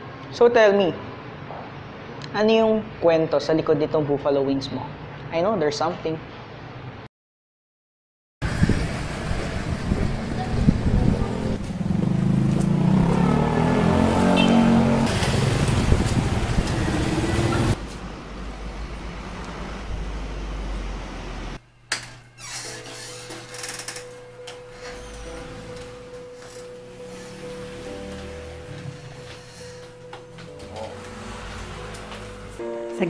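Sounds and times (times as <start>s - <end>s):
vehicles passing: 8.4s - 21.6s, 24.7s - 33.0s.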